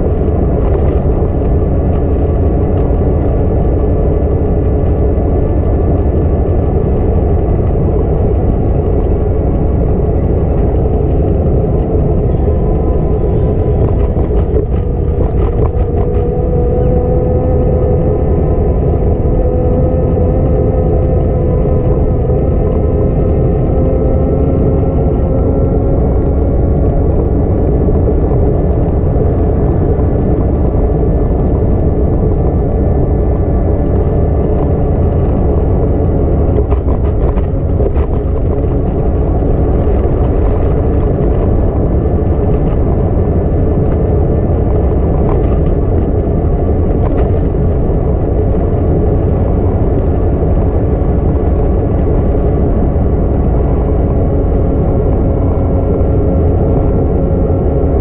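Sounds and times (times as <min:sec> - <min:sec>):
steady hum of tones: 0:00.0 - 0:58.0
wind buffeting microphone: 0:00.0 - 0:58.0.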